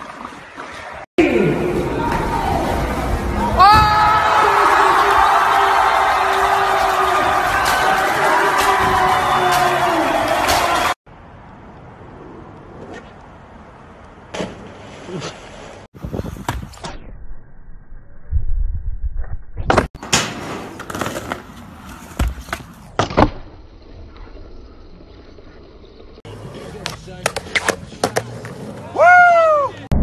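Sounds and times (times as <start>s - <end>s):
skateboard wheel noise: 4.8s - 11.0s, 20.0s - 29.3s
skateboard clacks and thumps: 19.7s - 23.5s, 26.3s - 28.8s.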